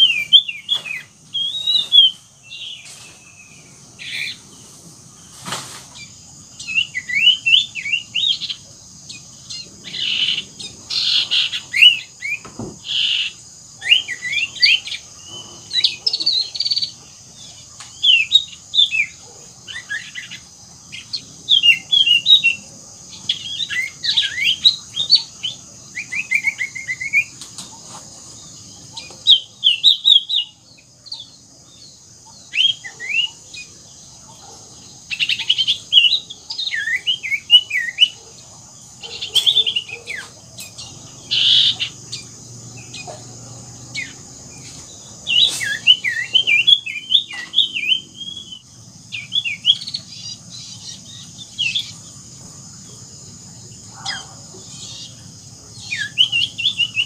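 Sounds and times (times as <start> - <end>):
bird singing whistled phrases: 0.0 - 2.8, 6.7 - 8.4, 45.3 - 48.6
steady high hiss: 0.0 - 57.0.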